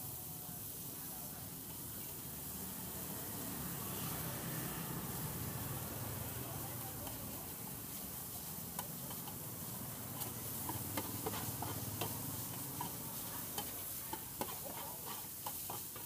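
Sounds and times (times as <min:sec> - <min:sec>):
faint steady sizzle: 0:00.0 - 0:16.0
metal chopsticks scraping steel pan: 0:08.7 - 0:09.4, 0:10.0 - 0:16.0.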